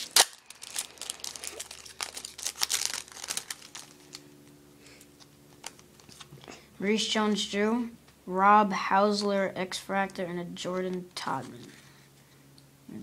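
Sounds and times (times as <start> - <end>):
foil wrapper crinkling: 0.0 - 4.5, 5.2 - 6.3
cards being pulled out: 0.0 - 6.6.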